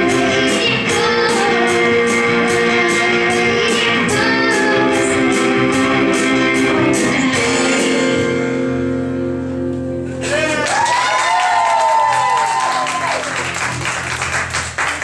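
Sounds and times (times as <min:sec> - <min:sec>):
live rock band playing: 0:00.0 - 0:11.0.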